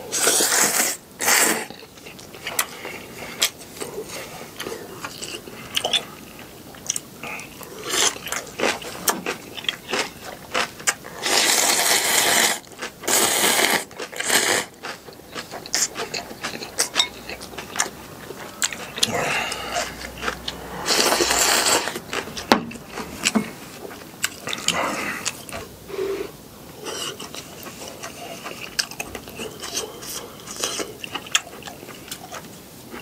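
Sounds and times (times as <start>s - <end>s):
person slurping noodles: 0.1s - 1.8s, 11.1s - 16.9s, 17.6s - 22.4s
chewing: 0.1s - 33.0s.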